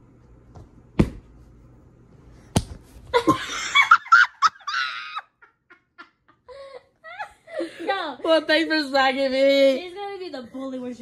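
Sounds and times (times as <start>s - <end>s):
hand slapping a person: 2.5s - 2.8s
woman laughing: 3.1s - 8.3s.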